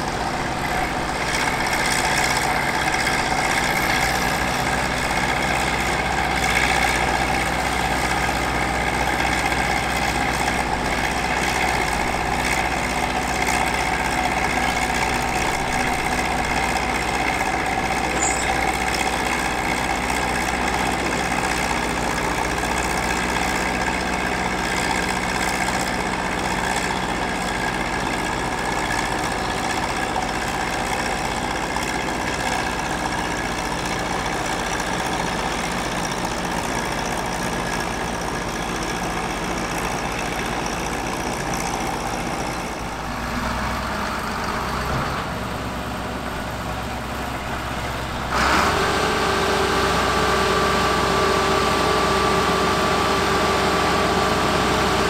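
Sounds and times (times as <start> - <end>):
heavy machinery engines idling: 0.0 - 55.0
steady higher tone: 18.0 - 18.8.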